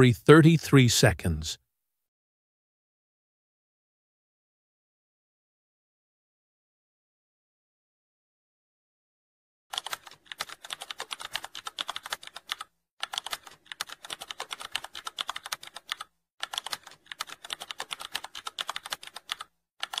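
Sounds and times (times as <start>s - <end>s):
keyboard typing clicks: 9.7s - 20.0s.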